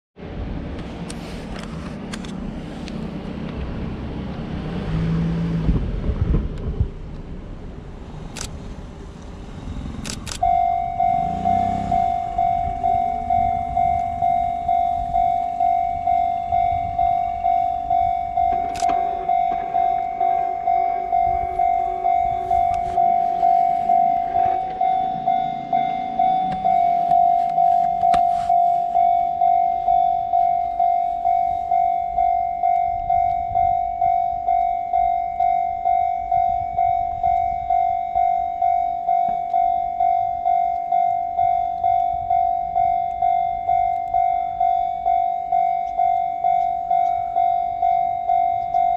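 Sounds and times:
low rumble: 0.2 - 48.8
level crossing warning bell: 9.9 - 48.9.

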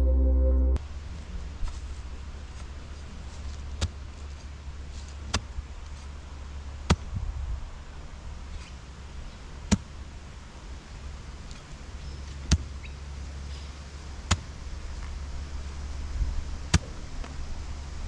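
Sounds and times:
steady low rumble: 0.0 - 4.9.

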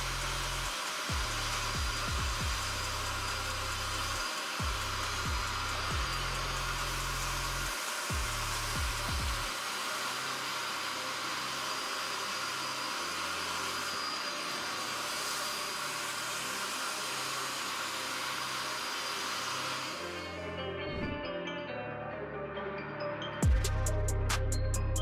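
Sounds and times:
carpet cleaner suction rushing: 0.0 - 21.2.

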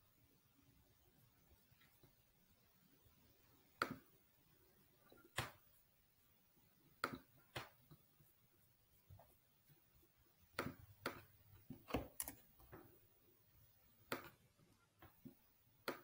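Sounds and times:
computer mouse and keyboard clicks: 10.6 - 12.8.

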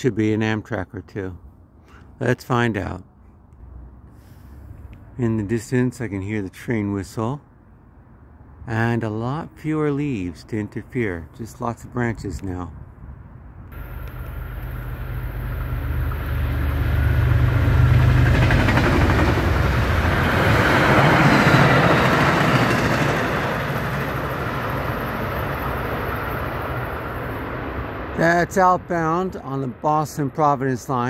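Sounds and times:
train rumble: 13.7 - 30.9
wheels clattering on rails: 13.8 - 27.3.

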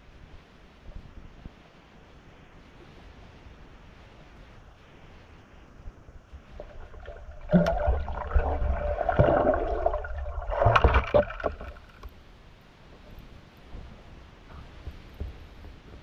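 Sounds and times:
muffled underwater water movement: 0.3 - 16.0
underwater knocks: 6.6 - 12.1.

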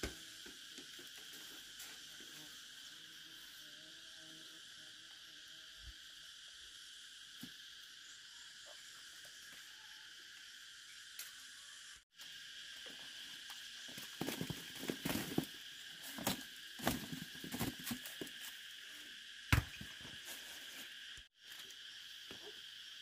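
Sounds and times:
insects shrilling: 0.0 - 23.0
roots rustling and clattering: 13.9 - 18.6.

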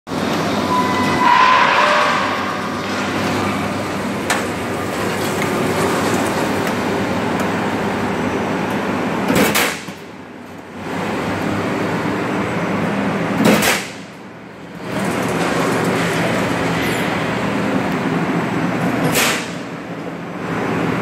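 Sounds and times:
high whine: 0.1 - 5.5
roll-forming machine hum: 0.1 - 21.0.

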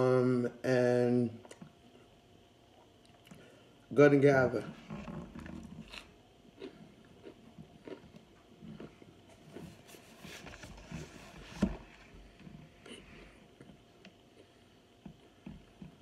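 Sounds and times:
chewing and crunching: 5.3 - 11.0.

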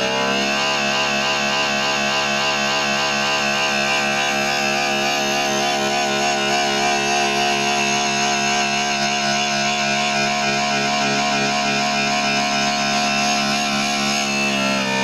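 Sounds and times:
electric motor whining: 0.0 - 15.0.

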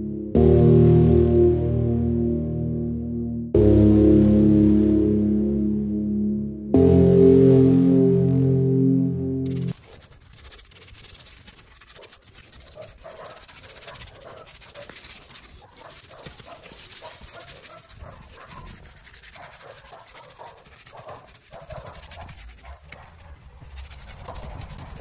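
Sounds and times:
brush scrubbing leather seat: 9.5 - 25.0.

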